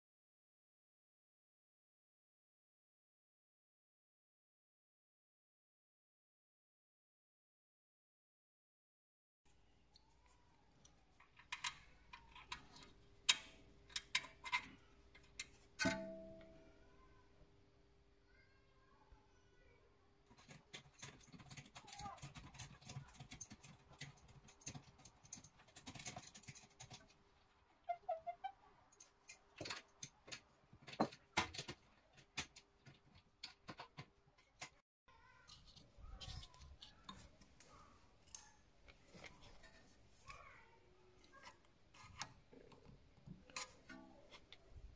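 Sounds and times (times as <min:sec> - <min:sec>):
metallic clicks of hand tools: 0:11.4 - 0:16.5.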